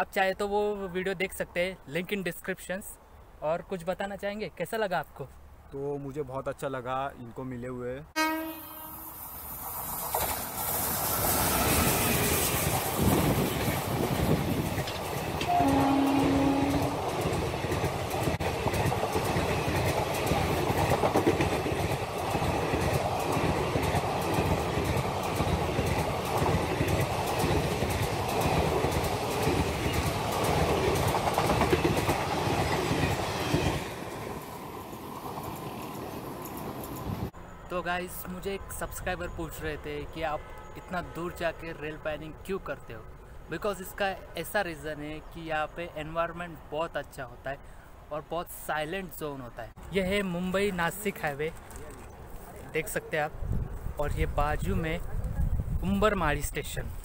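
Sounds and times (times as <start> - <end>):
train passing: 8.1 - 56.8
train horn blast: 8.2 - 9.2, 15.4 - 17.0.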